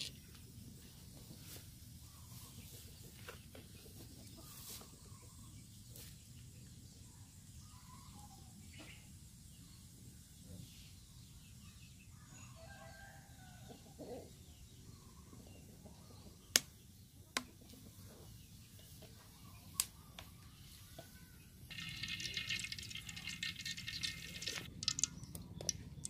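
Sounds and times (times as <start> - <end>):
wood fire crackling: 21.7 - 25.9.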